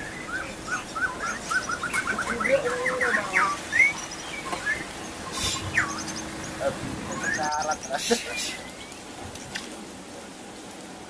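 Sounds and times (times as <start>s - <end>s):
bird whistling song: 0.0s - 9.6s.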